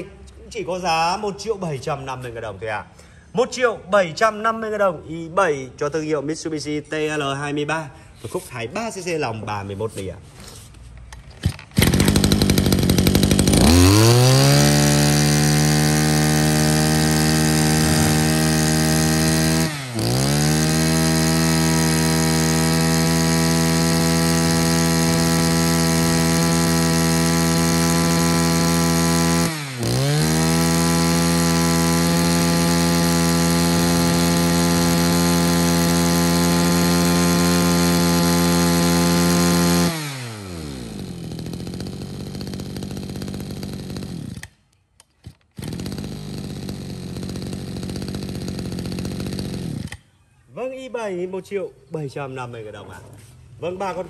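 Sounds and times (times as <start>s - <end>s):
brush-cutter engine revving: 9.9s - 50.2s.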